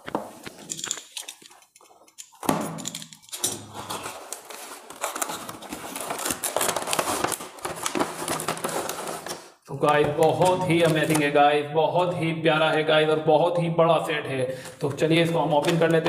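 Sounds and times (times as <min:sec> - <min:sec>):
cardboard and plastic scraping: 0:03.6 - 0:11.3, 0:14.6 - 0:16.0.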